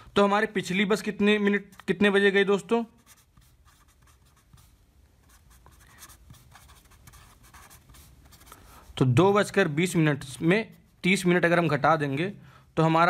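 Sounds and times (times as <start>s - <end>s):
pen scratching on paper: 3.0s - 8.7s.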